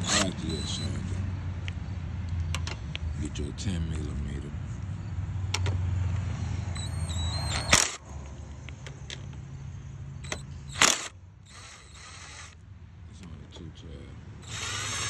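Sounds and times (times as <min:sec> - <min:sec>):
cordless drill bursts: 0:00.0 - 0:00.9, 0:06.7 - 0:08.0, 0:10.2 - 0:12.6, 0:14.4 - 0:15.0.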